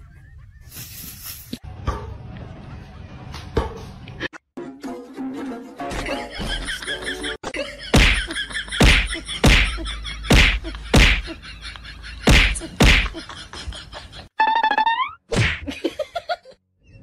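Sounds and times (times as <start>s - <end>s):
sharp whacks: 7.9s - 8.2s, 8.8s - 9.7s, 10.3s - 11.2s, 12.3s - 13.2s, 15.3s - 15.7s.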